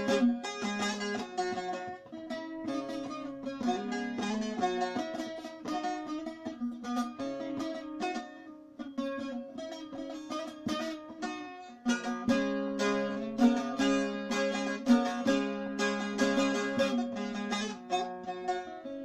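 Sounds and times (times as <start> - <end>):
plucked long-necked lute folk melody: 0.0 - 19.0.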